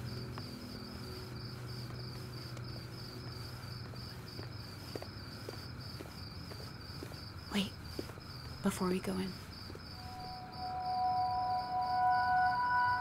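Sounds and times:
crickets chirping: 0:00.0 - 0:13.0
low hum: 0:10.0 - 0:13.0.

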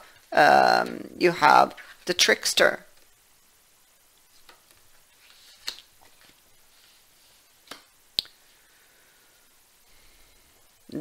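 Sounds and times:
cards rustling and sliding: 0:04.2 - 0:07.9
cards clicking and tapping: 0:05.5 - 0:06.4, 0:07.6 - 0:08.3.

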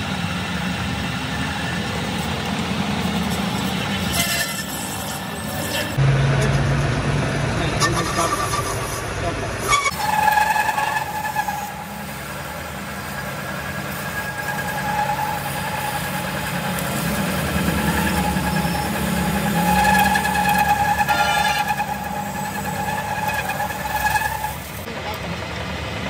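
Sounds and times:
whining cutting tone: 0:07.6 - 0:24.9
metal lathe humming: 0:10.0 - 0:24.9.

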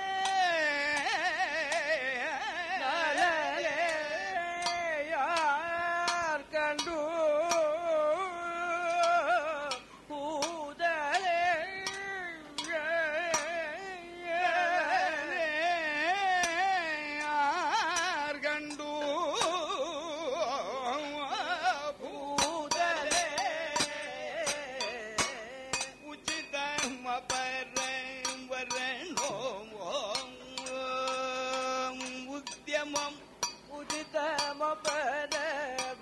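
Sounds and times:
man singing long ornamented notes: 0:00.0 - 0:36.0
sharp strikes: 0:14.5 - 0:36.0.

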